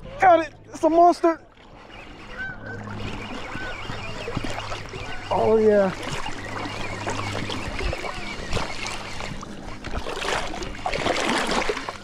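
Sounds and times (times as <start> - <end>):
fish splashing at water surface: 2.8 - 12.0.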